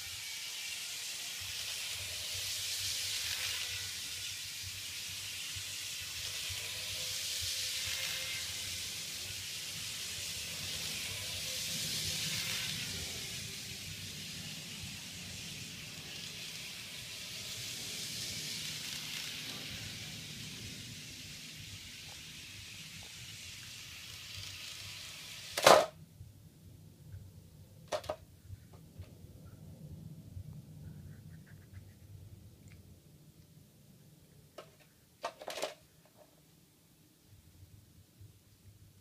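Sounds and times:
model train running on track: 0.0 - 26.0.

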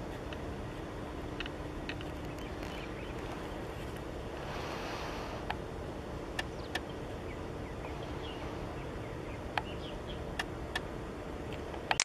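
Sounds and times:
faint hum: 0.0 - 12.0
faint bird chirps: 2.0 - 3.8, 6.4 - 10.9.

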